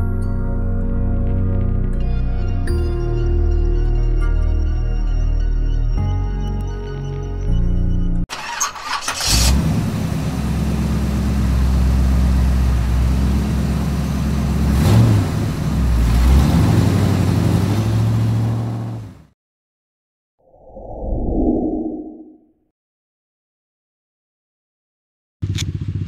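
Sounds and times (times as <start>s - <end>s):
motorcycle engine running: 9.6s - 16.0s, 25.4s - 26.0s.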